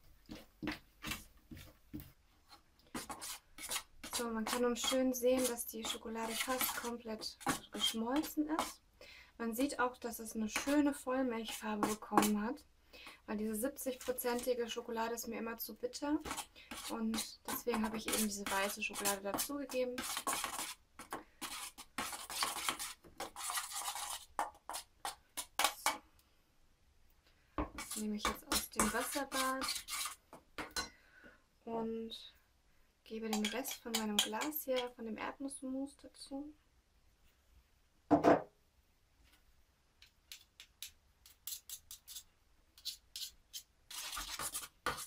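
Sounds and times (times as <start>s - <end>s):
spoon scraping metal bowl: 3.0s - 8.8s, 16.2s - 20.8s, 21.4s - 25.8s, 27.8s - 30.9s, 33.3s - 34.9s, 41.3s - 45.0s
spoon scraping glass jar: 27.8s - 30.2s.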